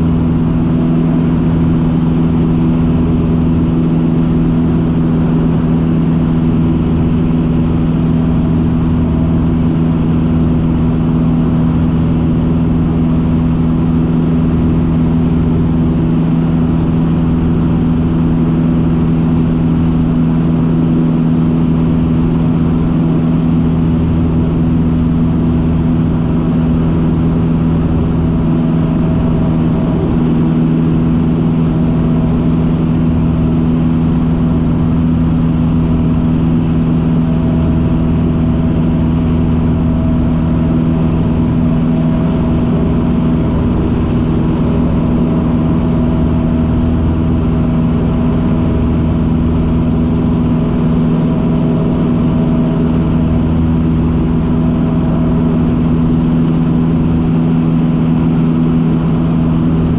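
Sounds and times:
light aircraft engine drone: 0:00.0 - 0:59.9.

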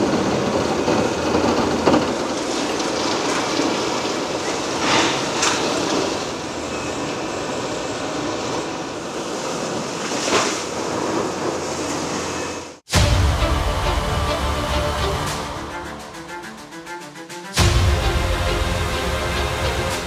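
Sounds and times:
demolition excavator rumble: 0:00.0 - 0:10.0.

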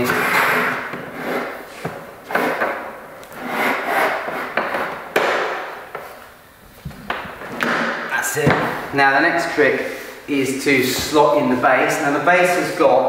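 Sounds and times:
wood panels scraping: 0:00.0 - 0:06.3.

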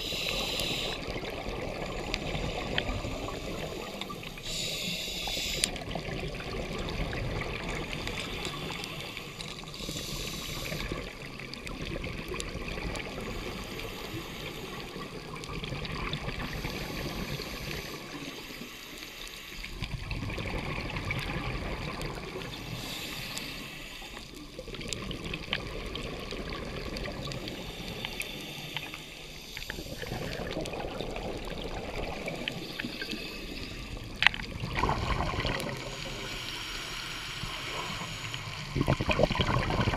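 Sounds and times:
regulator hissing inhales: 0:00.0 - 0:01.2, 0:02.3 - 0:05.8, 0:07.9 - 0:11.1, 0:13.5 - 0:15.0, 0:16.6 - 0:19.7, 0:22.6 - 0:24.3, 0:27.5 - 0:30.3, 0:32.7 - 0:34.1, 0:35.8 - 0:38.7
exhaled bubbles gurgling: 0:00.0 - 0:18.8, 0:19.5 - 0:39.9.

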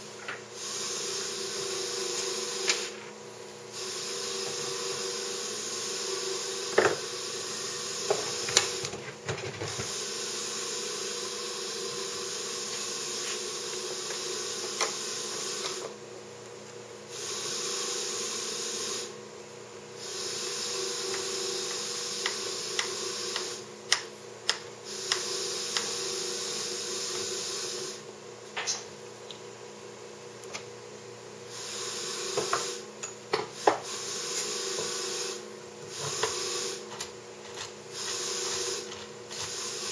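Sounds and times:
steady hiss and hum: 0:00.0 - 0:39.9
clicks and knocks of tools: 0:36.9 - 0:37.8.

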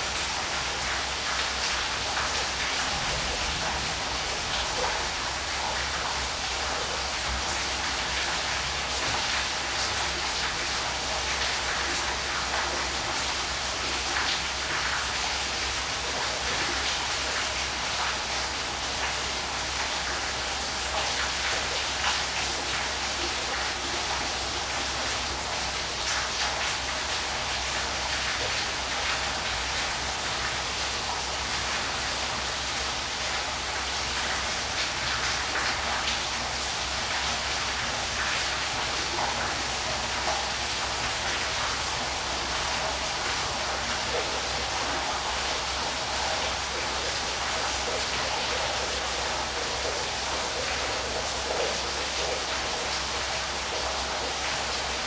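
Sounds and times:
waterfall rushing: 0:01.9 - 0:07.8.

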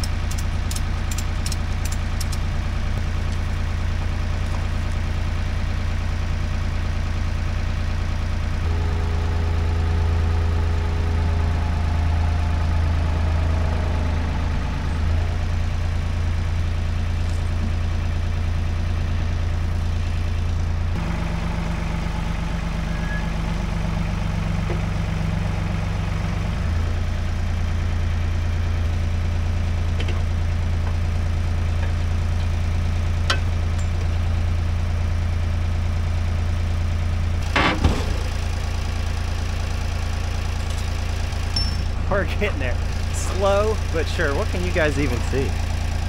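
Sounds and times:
backhoe engine idling: 0:00.0 - 0:46.0
metal clank: 0:37.4 - 0:38.4.

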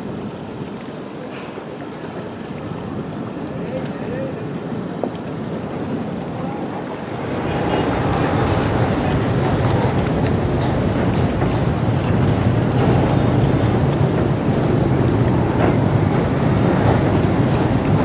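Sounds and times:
water washing: 0:00.0 - 0:18.0
ferry engine humming: 0:04.7 - 0:18.0.

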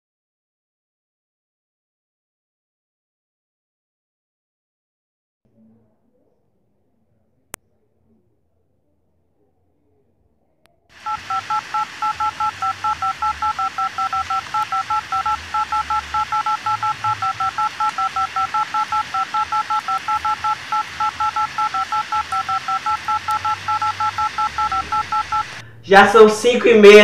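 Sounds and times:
alarm two-tone beeps: 0:11.0 - 0:25.6.

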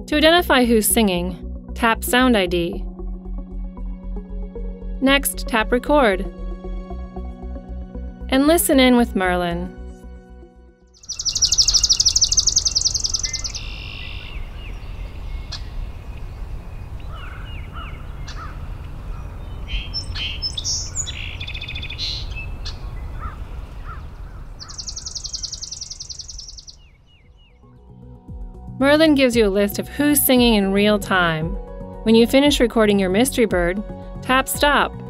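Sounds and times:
crow calling: 0:11.0 - 0:15.8, 0:17.0 - 0:26.8
birds calling: 0:11.0 - 0:27.6
sparrow trill: 0:11.0 - 0:27.7.

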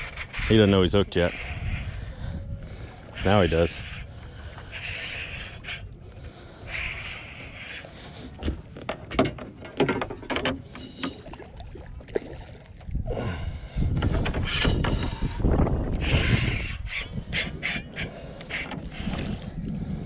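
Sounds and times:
knocks and bumps of handling: 0:08.4 - 0:11.2.

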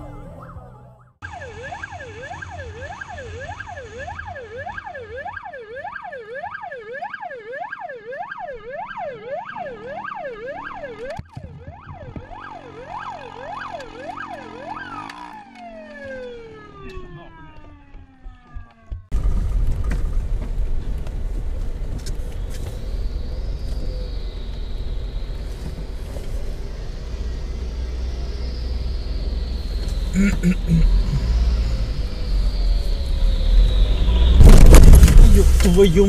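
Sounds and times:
siren yelping: 0:00.0 - 0:19.1
road noise: 0:08.3 - 0:36.0.

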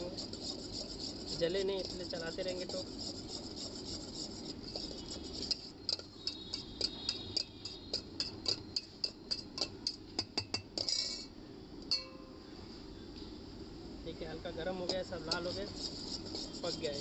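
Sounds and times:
spoon scraping steel bowl: 0:00.0 - 0:10.0, 0:10.8 - 0:11.3, 0:14.9 - 0:17.0.

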